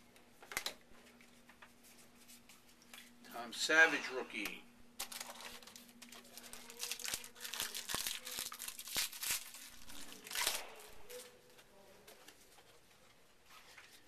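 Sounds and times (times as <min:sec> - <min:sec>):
wrapper crinkling and tearing: 0:05.0 - 0:11.3.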